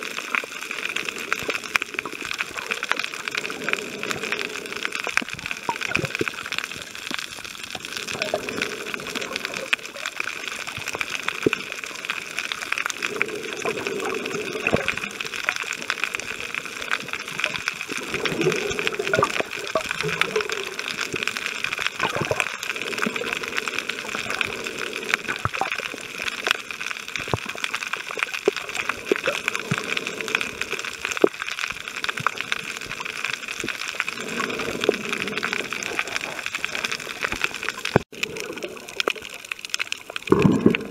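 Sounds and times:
underwater watery hiss: 0.0s - 6.6s, 7.8s - 26.8s, 34.2s - 37.4s
underwater clicks and crackles: 0.0s - 40.9s.

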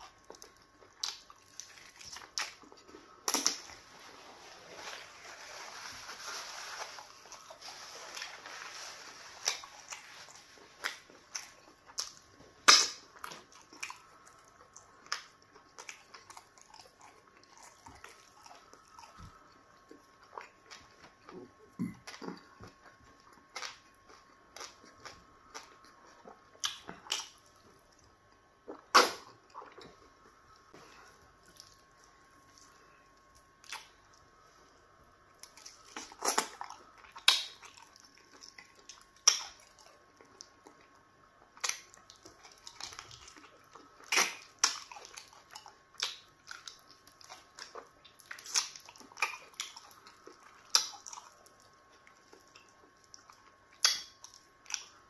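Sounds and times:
faint steady hum: 0.0s - 55.0s
wet eating smacks and chewing: 35.4s - 55.0s.

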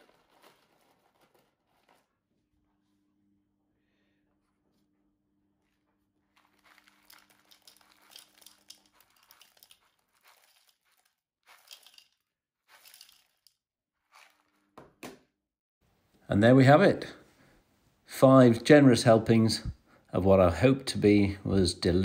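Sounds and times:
plastic tub rustling: 0.0s - 2.1s, 6.3s - 14.8s
dry food pouring into plastic jug: 6.4s - 14.6s.

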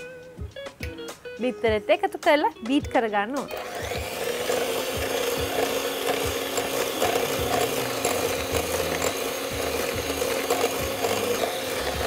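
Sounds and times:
electric hand mixer whisking: 3.5s - 12.0s.

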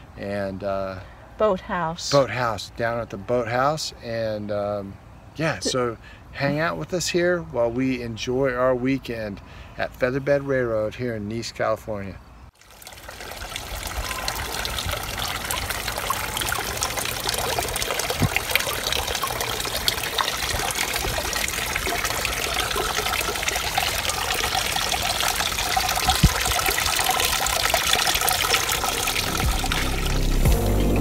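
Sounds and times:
water trickling into fountain: 12.5s - 30.5s.

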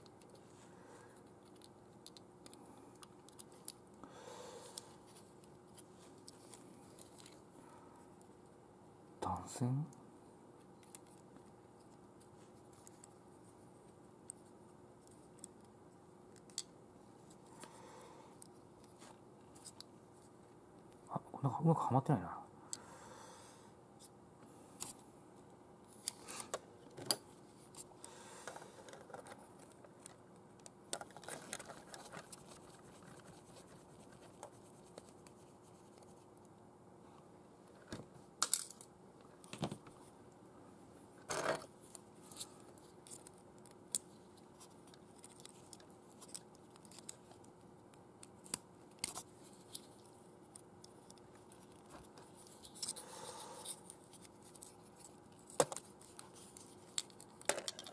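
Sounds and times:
small model parts clicking and scratching: 0.0s - 0.5s, 1.2s - 3.9s, 4.8s - 7.4s, 18.3s - 20.3s, 28.5s - 36.3s, 42.3s - 47.6s, 48.2s - 53.0s, 53.6s - 57.9s.

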